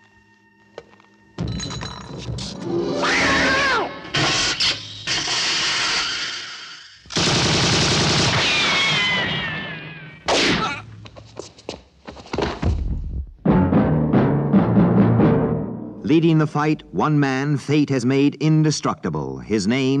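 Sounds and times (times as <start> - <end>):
gunshots: 7.1 - 10.8.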